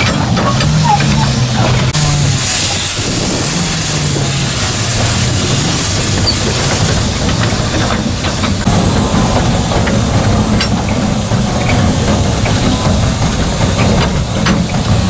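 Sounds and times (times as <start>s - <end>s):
steam hissing: 0.0s - 15.0s
steam locomotive rumbling: 0.0s - 15.0s.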